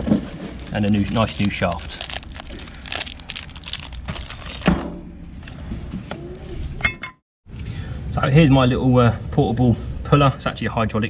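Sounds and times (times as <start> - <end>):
plastic packaging crinkling: 0.5 - 4.6.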